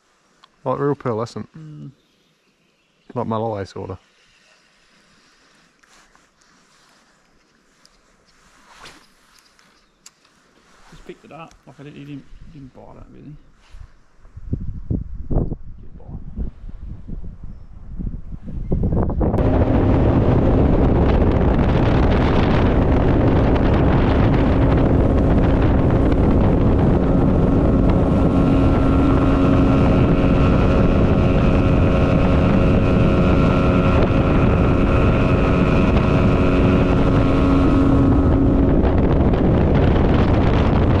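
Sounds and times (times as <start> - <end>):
wind on microphone: 11.9 - 41.0
motorboat engine running: 19.4 - 41.0.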